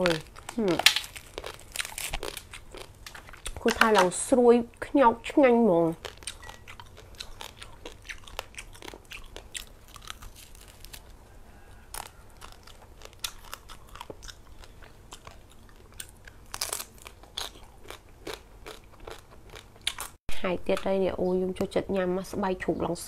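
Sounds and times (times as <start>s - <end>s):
person crunching crispy food: 0.0s - 3.8s, 6.0s - 20.2s.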